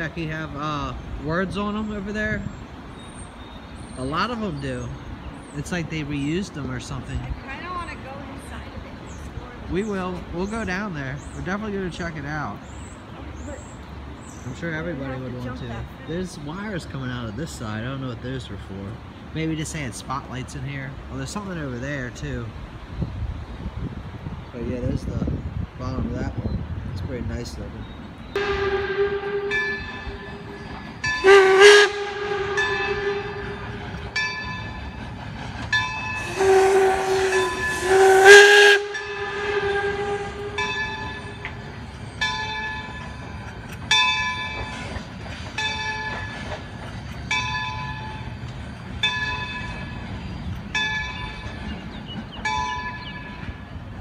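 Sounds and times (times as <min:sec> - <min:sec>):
locomotive bell ringing: 0:28.3 - 0:54.0
steam whistle blasts: 0:28.4 - 0:30.4, 0:31.2 - 0:33.8, 0:36.2 - 0:41.4
rush of steam: 0:28.4 - 0:50.6.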